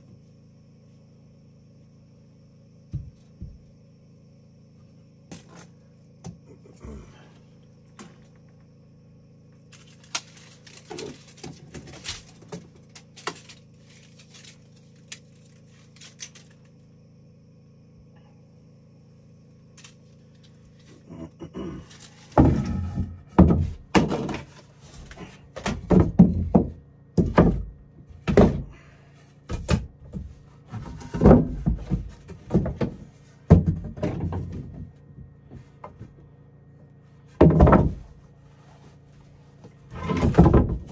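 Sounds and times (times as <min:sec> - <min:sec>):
steady low hum: 0:00.0 - 0:40.9
heavy wooden thuds: 0:02.9 - 0:03.7, 0:22.3 - 0:24.5, 0:25.1 - 0:28.8, 0:29.6 - 0:36.2, 0:37.4 - 0:38.2, 0:40.0 - 0:40.9.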